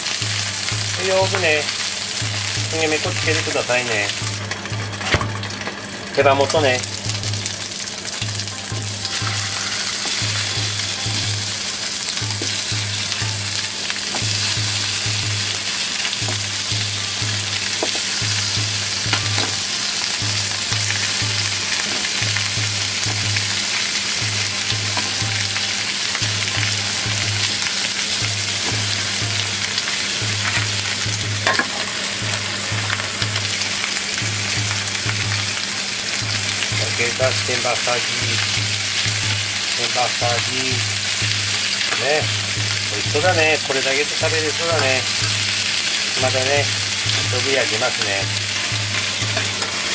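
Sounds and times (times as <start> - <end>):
chicken sizzling in hot oil: 0.0 - 49.9
low pulsing hum: 6.6 - 39.8.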